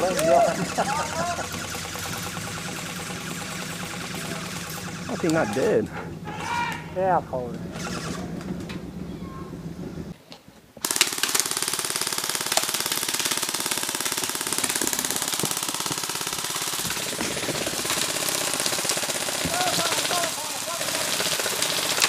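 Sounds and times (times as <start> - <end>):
gun firing rapid automatic burst: 0.0 - 5.8, 10.8 - 22.0.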